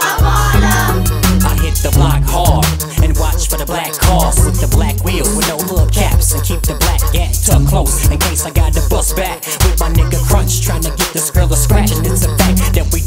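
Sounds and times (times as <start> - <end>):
hip hop bass and drum beat: 0.0 - 13.0
rapping vocal: 0.0 - 13.0.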